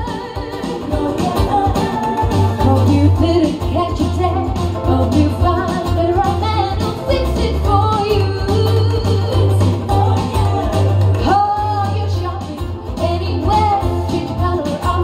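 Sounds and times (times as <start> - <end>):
acoustic guitar: 0.0 - 15.0
woman singing into a microphone: 0.0 - 15.0.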